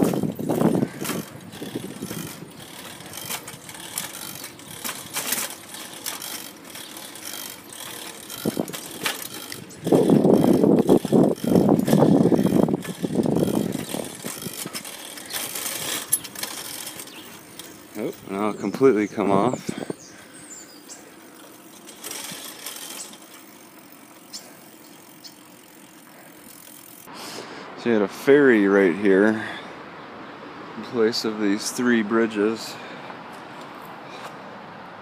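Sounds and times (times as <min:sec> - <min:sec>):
bicycle chain and gears clicking: 0:00.0 - 0:27.4.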